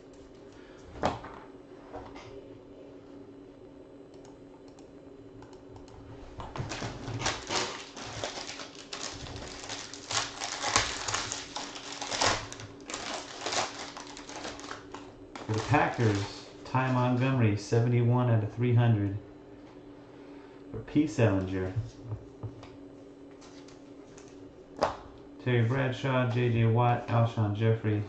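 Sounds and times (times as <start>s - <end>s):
faint steady hum: 0.0s - 28.0s
foil pack crinkling and tearing: 6.6s - 17.3s.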